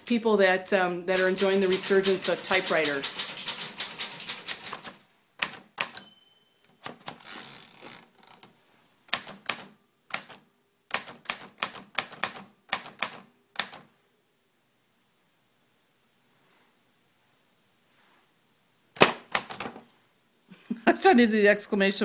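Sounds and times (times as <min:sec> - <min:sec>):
manual typewriter typing: 0:01.1 - 0:06.0, 0:09.1 - 0:13.9.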